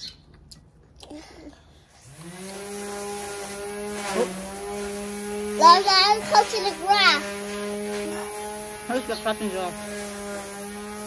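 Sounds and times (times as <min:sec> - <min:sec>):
lawnmower motor running: 0:02.0 - 0:11.0.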